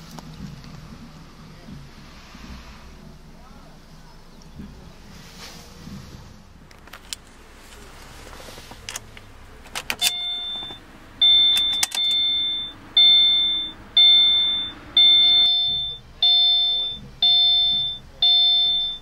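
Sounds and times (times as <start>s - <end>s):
idling engine hum: 0.0s - 19.0s
car warning chime dinging: 9.6s - 19.0s
sharp clicks: 11.5s - 12.3s.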